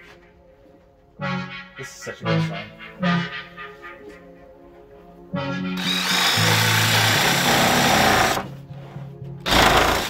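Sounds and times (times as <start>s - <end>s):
background music: 0.0s - 10.0s
jigsaw cutting wood: 5.8s - 8.5s, 9.5s - 10.0s.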